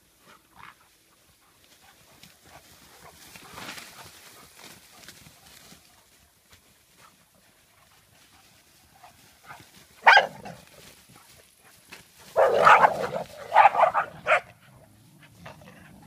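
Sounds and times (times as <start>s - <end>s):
dog barking: 9.5s - 10.6s, 12.3s - 14.6s.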